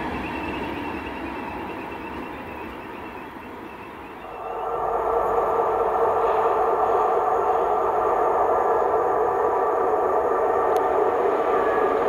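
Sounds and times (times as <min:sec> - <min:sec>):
train wheels rushing on rails: 0:00.0 - 0:12.0
faint whine: 0:00.9 - 0:12.0.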